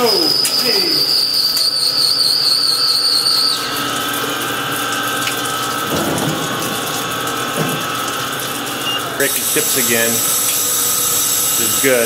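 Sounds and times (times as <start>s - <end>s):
coolant rushing: 0.0s - 12.0s
lathe machining noise: 6.8s - 12.0s.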